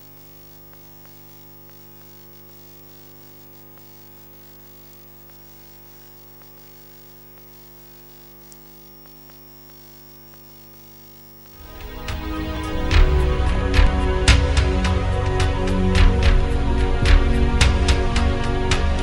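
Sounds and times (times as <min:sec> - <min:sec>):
electrical mains hum: 0:00.0 - 0:14.7
faint click: 0:00.6 - 0:11.6.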